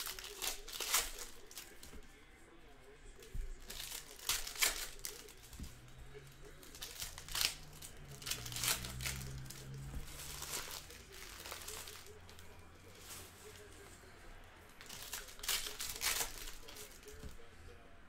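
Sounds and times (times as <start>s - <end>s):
foil wrappers crinkling and tearing: 0.0s - 2.1s, 3.3s - 5.7s, 6.5s - 13.8s, 14.8s - 17.4s.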